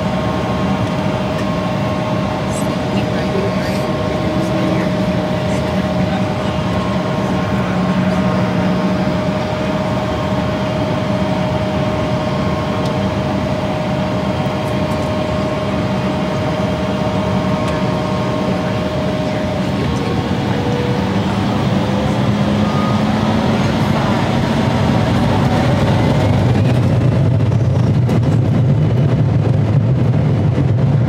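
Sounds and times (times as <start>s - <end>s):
jet engine cabin rumble: 0.0s - 31.0s
steady tone changing pitch: 15.2s - 26.9s.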